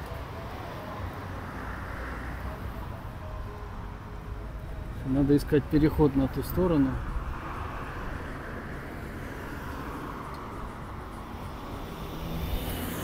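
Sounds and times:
road traffic: 0.0 - 13.0
vehicle passing close: 7.0 - 13.0.

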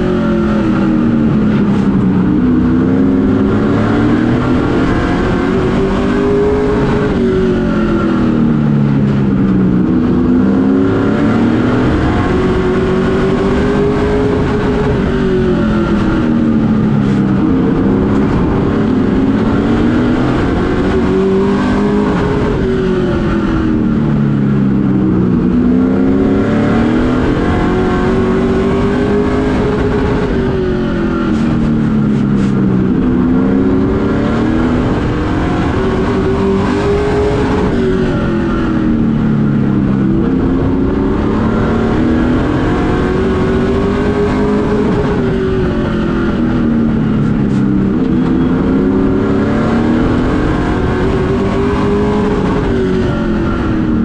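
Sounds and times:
race truck engine revving: 0.0 - 54.0.

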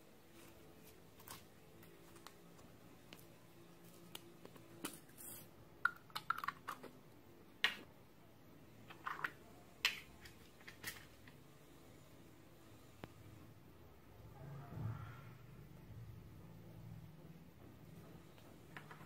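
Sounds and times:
plastic cups clicking: 5.8 - 7.0, 8.9 - 11.4.

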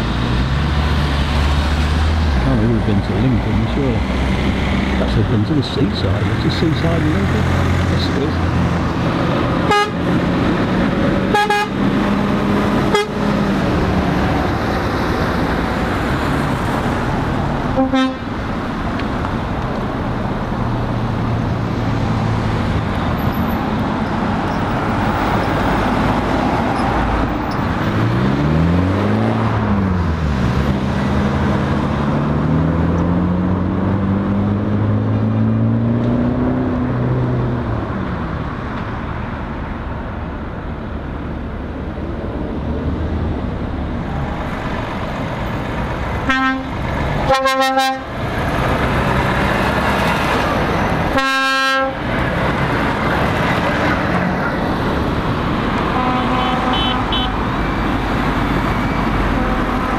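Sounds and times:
road traffic: 0.0 - 59.9
lorry horn: 9.7 - 10.0, 11.3 - 11.8, 12.9 - 13.2, 17.8 - 18.3, 46.3 - 48.1, 51.1 - 52.0, 55.9 - 57.4
engine pulling away: 48.1 - 51.1.

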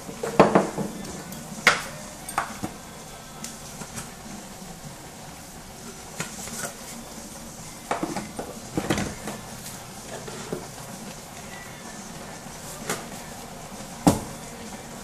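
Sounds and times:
bottles and utensils clattering: 0.0 - 4.4, 7.8 - 11.4
steaming pot hissing: 0.0 - 15.0.

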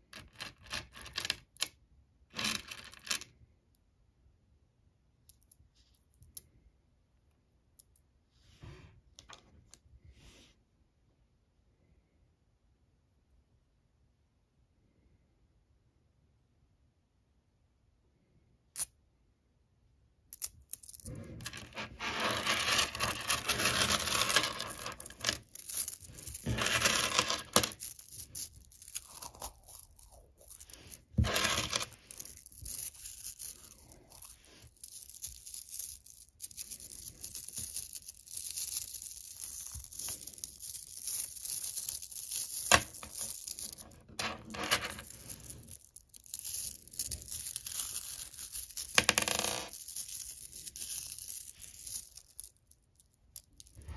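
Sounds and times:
magnetic pebbles clattering: 21.1 - 34.4.

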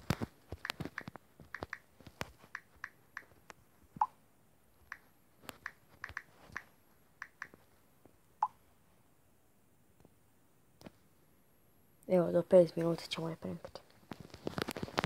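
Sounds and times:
phone keyboard clicks: 0.6 - 1.9, 4.9 - 7.6.

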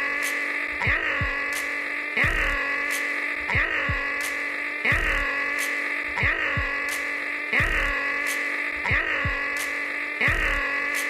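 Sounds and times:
background music: 0.0 - 11.0
man imitating chainsaw with voice: 0.0 - 11.0.

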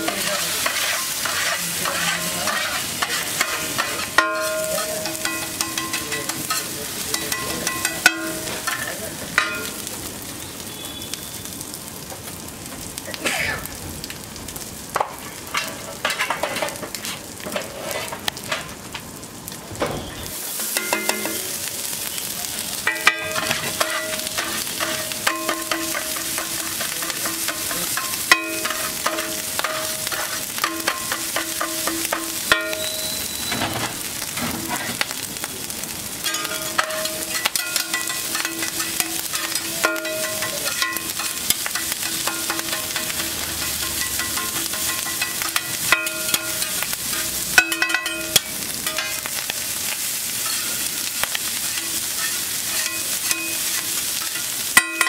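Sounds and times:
metal spatulas clanking and scraping: 0.0 - 9.9, 15.5 - 18.7, 22.9 - 35.0, 36.2 - 55.0
food sizzling on griddle: 0.0 - 55.0.

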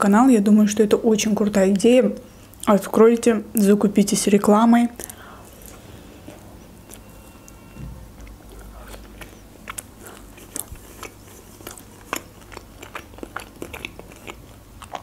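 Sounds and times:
crunchy chewing: 5.0 - 15.0.

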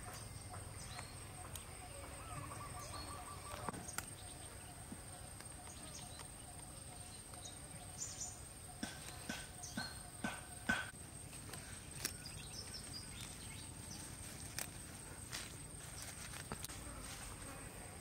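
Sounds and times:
leaves rustling: 0.9 - 9.4, 10.9 - 18.0
herb stems snapping: 3.5 - 4.2, 10.7 - 13.4, 14.3 - 15.6, 16.2 - 16.7.

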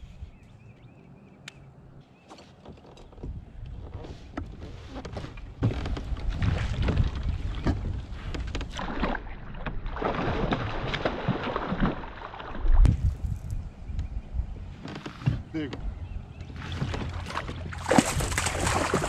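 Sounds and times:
knocks and clicks on boat: 2.2 - 12.0, 13.9 - 19.0
wind noise: 5.8 - 8.8, 12.7 - 14.8
water rushing: 17.0 - 19.0.

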